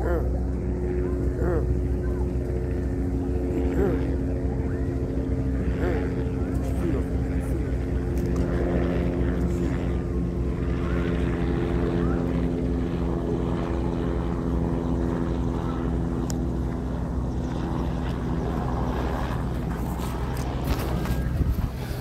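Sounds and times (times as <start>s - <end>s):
low motor hum: 0.0s - 22.0s.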